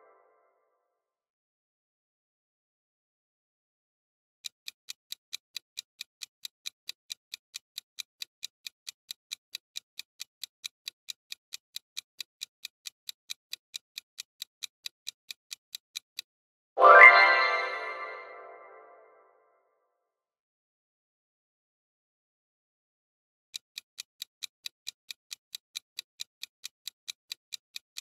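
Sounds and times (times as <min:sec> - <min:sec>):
clock ticking countdown: 0:04.4 - 0:18.8, 0:23.5 - 0:28.0
loud bright chime: 0:16.8 - 0:18.7.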